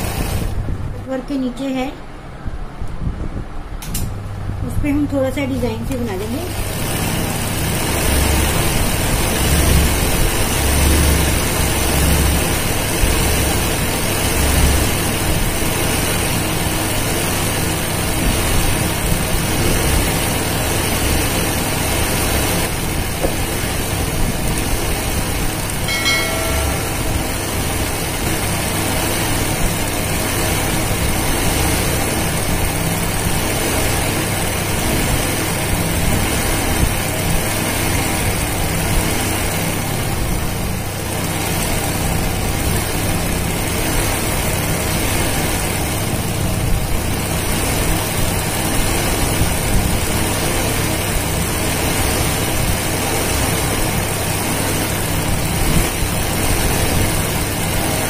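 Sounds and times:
sewing machine stitching: 6.4 - 22.7.

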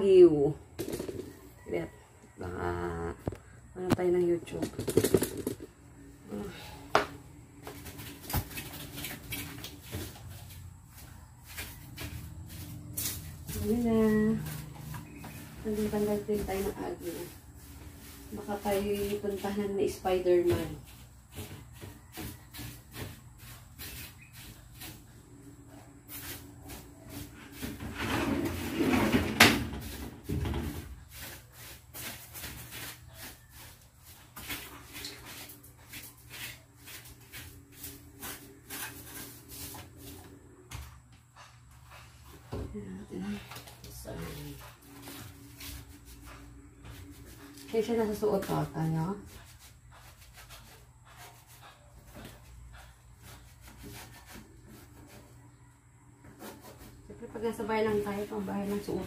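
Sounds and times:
household items knocking and clattering: 0.8 - 1.4, 4.5 - 5.8
faint rubbing and scraping strokes: 9.0 - 40.4, 41.4 - 59.0
rustling scrape: 26.1 - 40.2.

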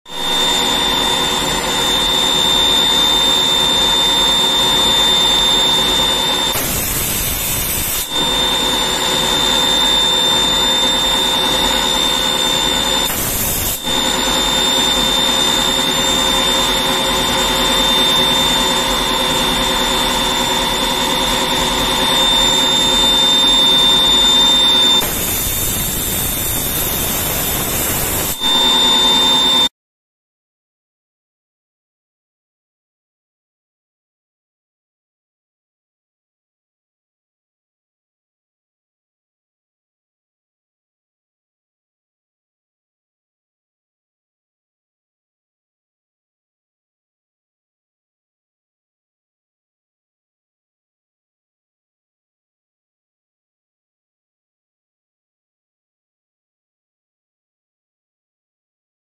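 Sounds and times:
machine spindle whine: 0.1 - 29.7
high hiss: 6.5 - 8.2, 13.1 - 13.9.

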